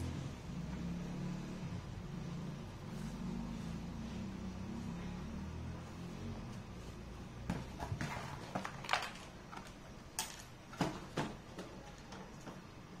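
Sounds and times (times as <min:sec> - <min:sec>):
cardboard packaging knocks and scuffs: 0:07.4 - 0:09.0.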